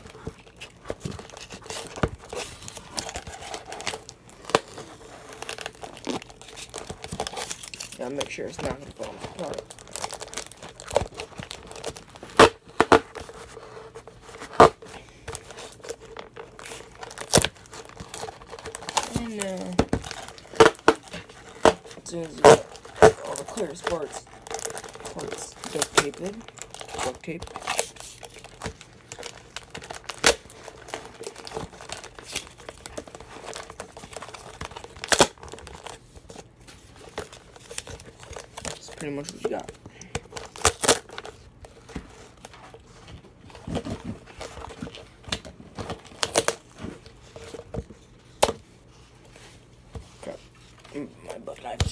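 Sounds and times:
tape and plastic crinkling: 0.0s - 51.9s
sharp tape rips: 15.8s - 36.0s, 40.4s - 41.4s.

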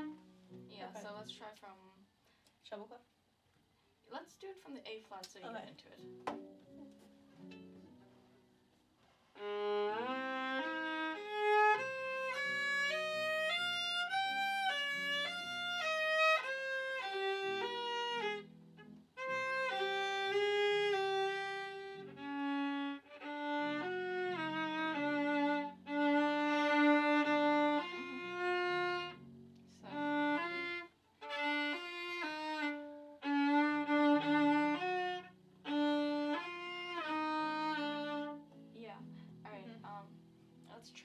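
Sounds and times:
bowed viola: 0.0s - 1.2s, 9.3s - 40.2s.

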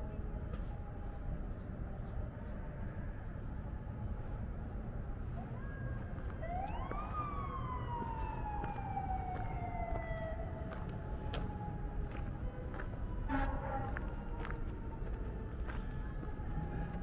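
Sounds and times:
siren wailing: 0.1s - 17.0s
steady low rumble: 4.2s - 17.0s.

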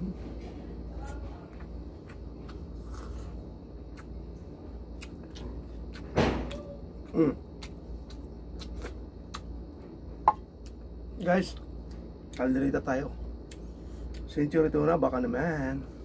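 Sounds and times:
low steady hum: 0.0s - 16.0s
chewing and lip-smacking: 1.4s - 9.6s, 13.4s - 14.4s.

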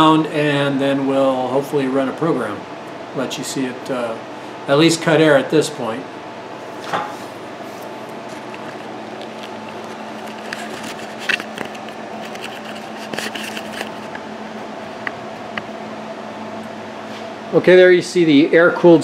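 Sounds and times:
steady background hum: 0.0s - 19.0s
camera handling clicks and rustles: 8.3s - 14.2s.

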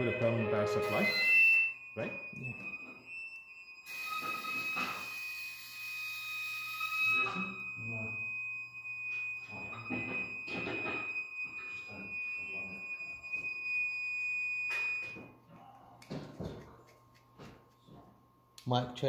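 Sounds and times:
high-pitched electronic tone: 0.0s - 8.4s.

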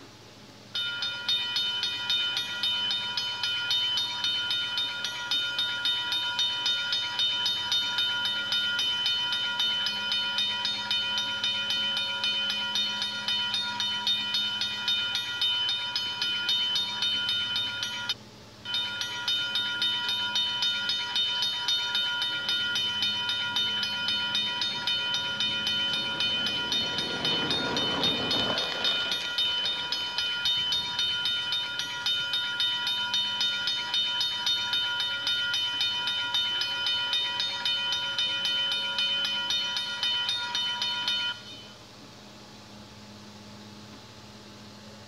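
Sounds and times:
toy crossing bell dinging: 0.8s - 41.8s
rushing noise: 24.4s - 31.2s.

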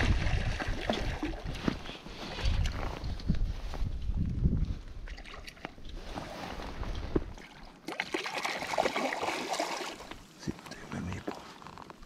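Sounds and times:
wind rumble on microphone: 0.0s - 7.4s
water splashing and sloshing: 0.0s - 10.4s.

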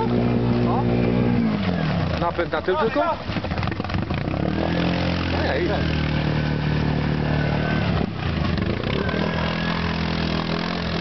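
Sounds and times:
quad bike engine running: 0.0s - 11.0s
water churning: 0.0s - 11.0s.

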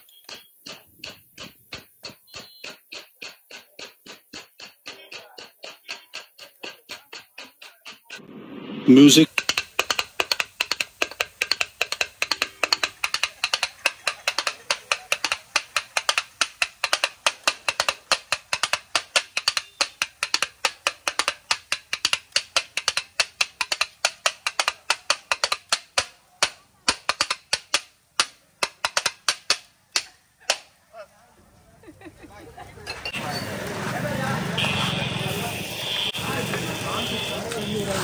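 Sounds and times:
metal spatulas clanging on griddle: 0.0s - 8.2s.

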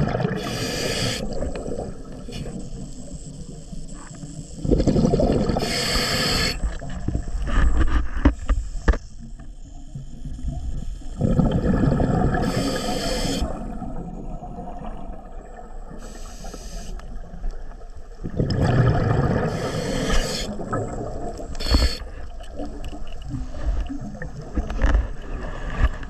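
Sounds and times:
exhaled bubbles gushing: 0.0s - 2.3s, 4.6s - 6.0s, 11.1s - 16.0s, 17.1s - 25.6s
regulator hiss on inhale: 0.3s - 1.6s, 2.2s - 4.6s, 5.5s - 9.1s, 12.3s - 13.6s, 15.9s - 17.2s, 19.4s - 20.7s, 21.5s - 22.3s.

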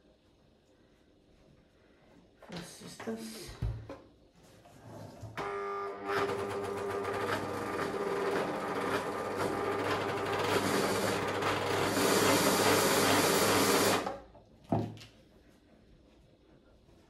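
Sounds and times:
sewing machine clattering: 6.1s - 14.1s.

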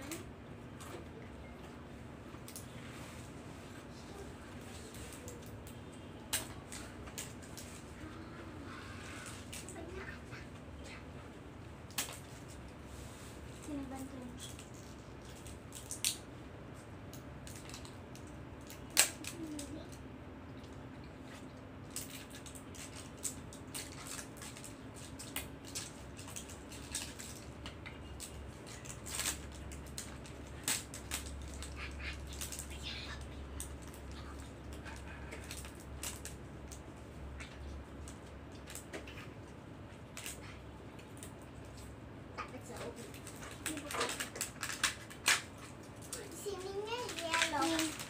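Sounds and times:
plastic packaging crackling: 17.1s - 20.0s, 21.4s - 39.3s, 42.6s - 48.0s.

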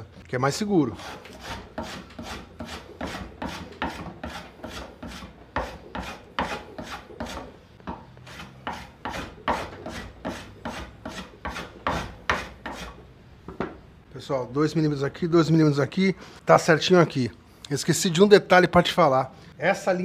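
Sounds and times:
hand plane scraping wood: 1.0s - 13.0s.

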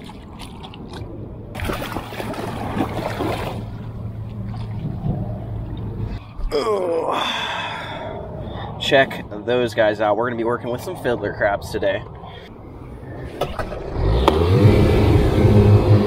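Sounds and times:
water splashing around boat hull: 0.0s - 6.2s
low steady hum: 0.0s - 13.9s
man grunting: 6.5s - 8.0s.

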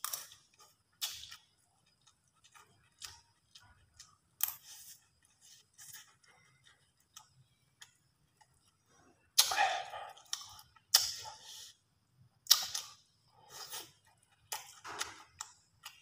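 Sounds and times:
chewing and mouth clicks: 0.0s - 11.5s, 12.4s - 16.0s.

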